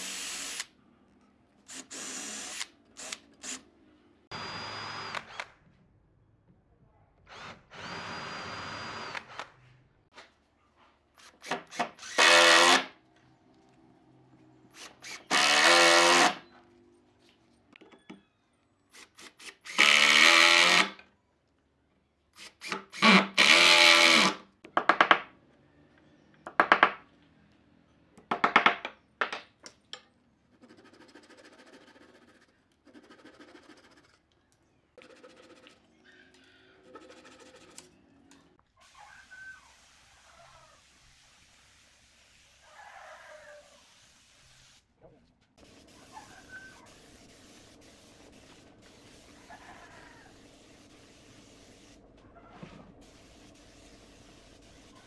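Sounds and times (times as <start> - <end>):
cordless drill boring wood: 0.0 - 0.7, 1.7 - 3.6, 7.3 - 9.4, 11.4 - 12.9, 14.8 - 16.4, 19.4 - 20.9, 22.6 - 24.4.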